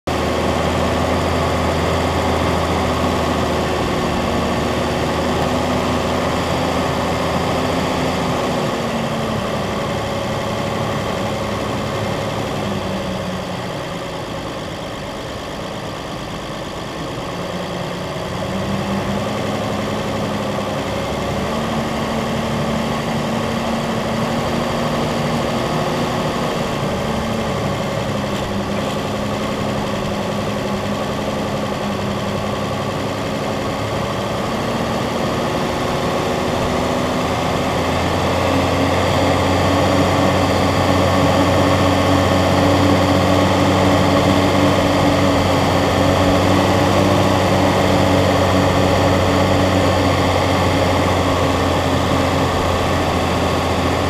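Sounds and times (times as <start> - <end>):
vehicle engine running at low speed: 0.0 - 54.0.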